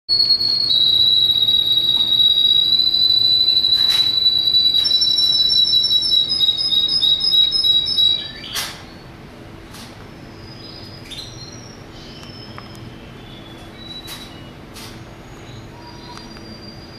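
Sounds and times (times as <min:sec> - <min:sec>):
canary singing: 0:00.1 - 0:09.1, 0:10.1 - 0:16.9
faint bird chirps: 0:10.1 - 0:16.9.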